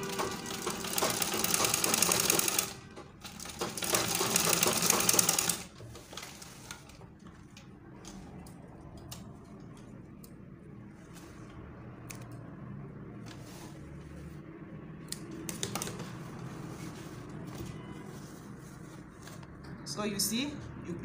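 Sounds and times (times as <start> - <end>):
sewing machine stitching: 0.0 - 7.0.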